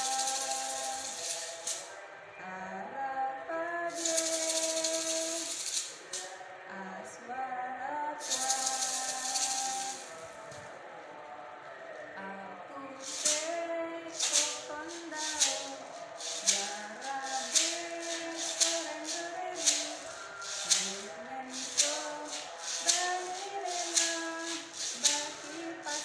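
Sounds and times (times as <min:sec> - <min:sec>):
bean shaker rattling: 0:00.0 - 0:01.9, 0:03.9 - 0:06.4, 0:08.2 - 0:10.7, 0:13.0 - 0:26.0.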